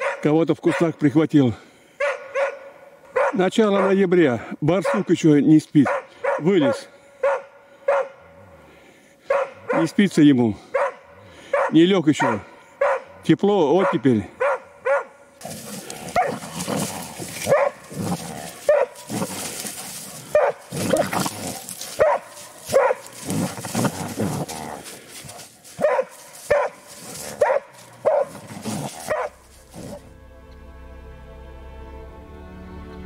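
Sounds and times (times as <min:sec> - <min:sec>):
dog barking: 0:00.0 - 0:01.0, 0:02.0 - 0:04.1, 0:04.8 - 0:05.1, 0:05.8 - 0:08.2, 0:09.2 - 0:10.0, 0:10.7 - 0:13.2, 0:13.8 - 0:16.6, 0:17.2 - 0:21.1, 0:21.9 - 0:23.4, 0:25.7 - 0:29.4.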